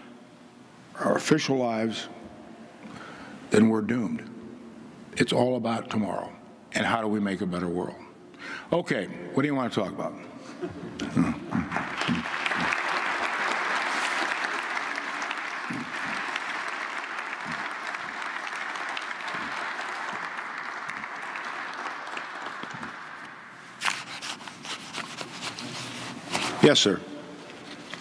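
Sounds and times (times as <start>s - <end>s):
audience applauding: 11.1s - 24.2s.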